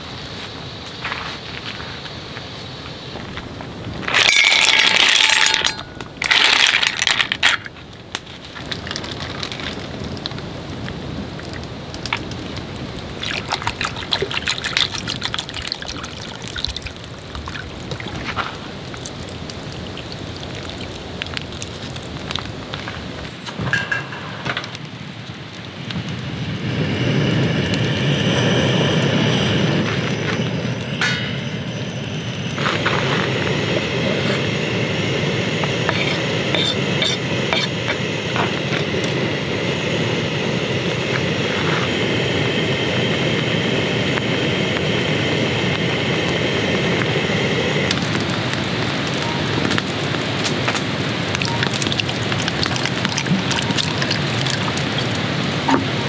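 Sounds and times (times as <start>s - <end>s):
gas stove burner hissing: 26.6s - 56.0s
loud hissing bursts: 26.6s - 56.0s
food sizzling in a pan: 29.2s - 56.0s.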